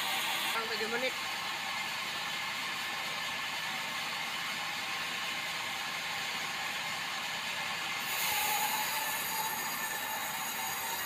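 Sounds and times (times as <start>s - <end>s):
band sawmill running: 0.0s - 11.0s.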